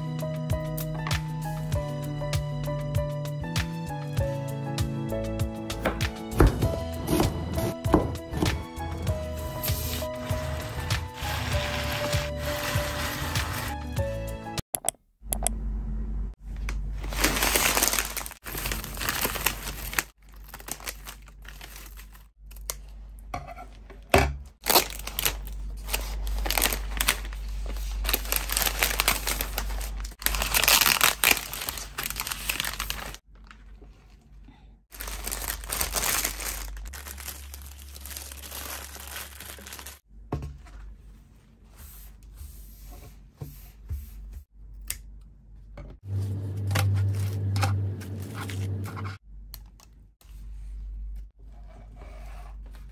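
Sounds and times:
plastic wrapping crinkling: 9.6s - 13.8s, 16.9s - 22.7s, 24.6s - 34.3s, 34.9s - 40.0s.

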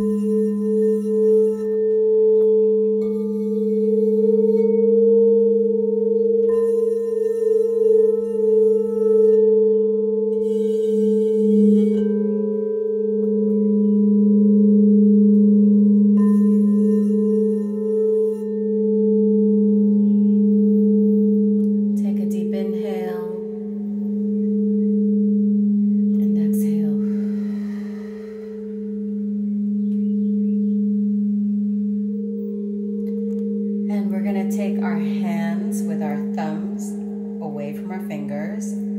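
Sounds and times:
singing bowls ringing: 0.0s - 38.9s.

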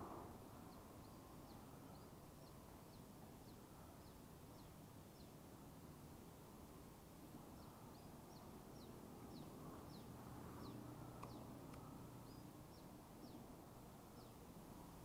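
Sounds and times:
low outdoor hum: 0.0s - 15.0s
small bird chirping: 7.5s - 13.4s.

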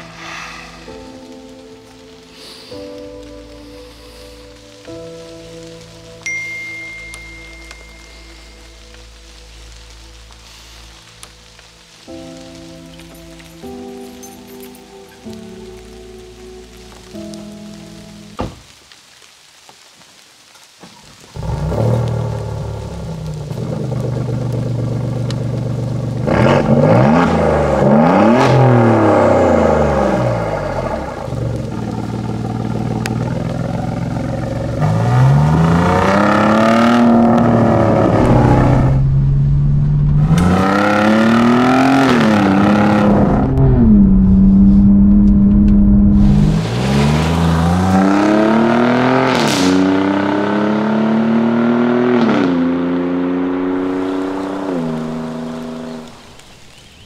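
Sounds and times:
car engine revving and accelerating: 21.4s - 56.4s.

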